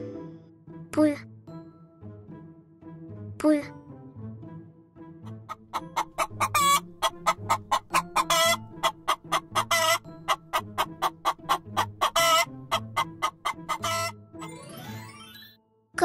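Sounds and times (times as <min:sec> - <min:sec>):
hens clucking: 0:05.3 - 0:14.2
hens squawking: 0:05.4 - 0:14.2.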